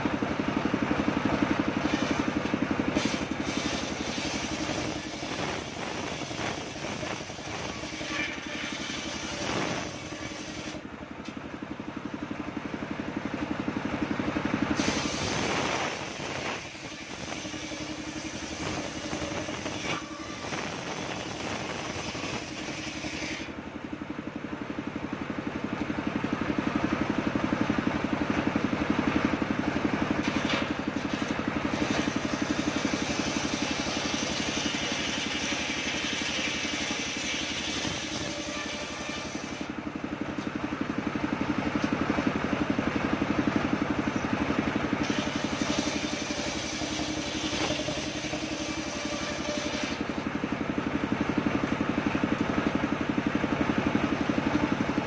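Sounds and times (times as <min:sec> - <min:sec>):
engine running with fast pulse: 0:00.0 - 0:55.0
circular saw cutting wood: 0:01.8 - 0:10.8, 0:14.8 - 0:23.6, 0:30.2 - 0:39.8, 0:45.0 - 0:50.3.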